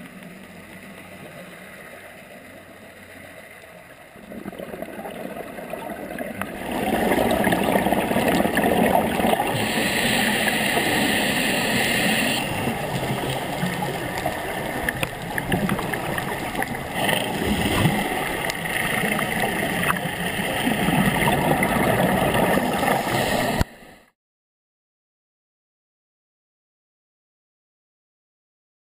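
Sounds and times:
gurgling exhaled bubbles underwater: 4.1 - 23.6
regulator hissing inhalation: 9.4 - 12.8, 22.9 - 23.7.

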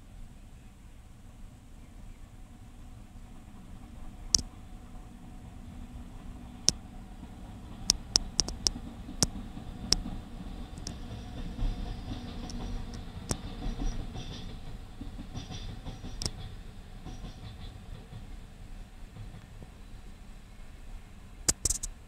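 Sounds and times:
distant freight train rumble: 0.0 - 22.0
sharp clicks: 7.9 - 8.8, 21.5 - 22.0.

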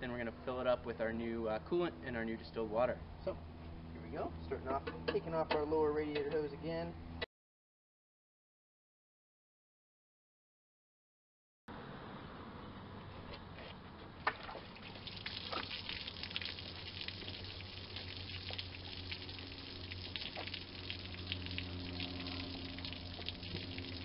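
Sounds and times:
liquid pouring and splashing: 14.3 - 24.0.

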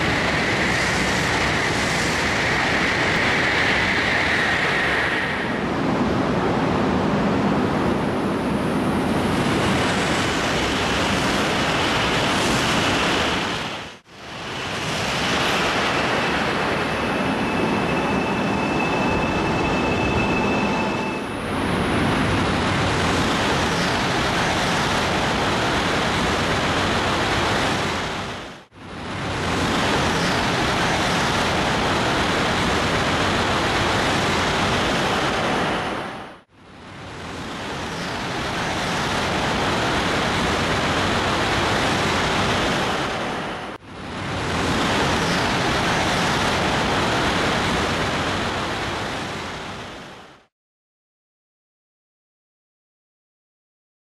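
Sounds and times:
faint high whine: 0.0 - 13.5, 14.2 - 27.6
high-speed train rushing past: 0.0 - 50.3.

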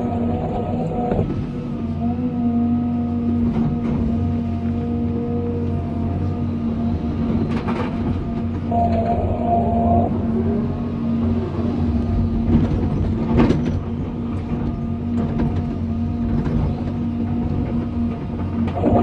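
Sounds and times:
hydraulic whine: 0.0 - 3.0, 8.1 - 12.6, 18.6 - 19.0
excavator diesel engine running: 0.0 - 19.0.

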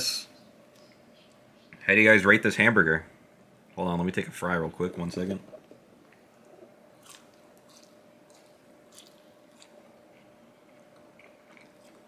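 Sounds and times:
chewing french fry: 6.1 - 12.0.

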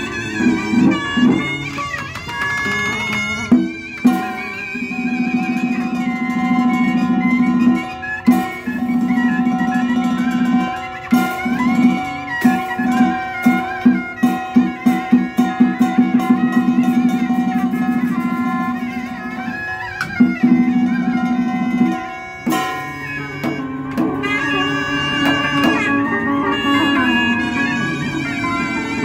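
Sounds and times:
plucked zither and lute: 0.0 - 29.0
small drums: 0.0 - 29.0
two-string fiddle: 0.0 - 29.0
gong: 20.8 - 29.0.

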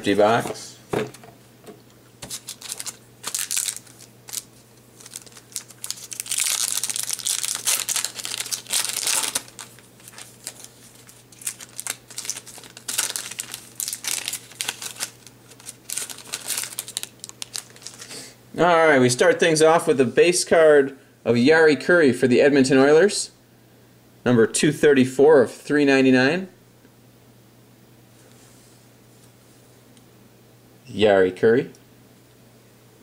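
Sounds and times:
card pack wrapper crinkling and tearing: 2.2 - 18.1.

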